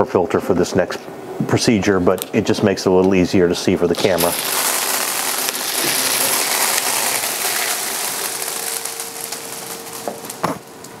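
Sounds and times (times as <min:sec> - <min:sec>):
small pellets rattling: 0:03.9 - 0:11.0.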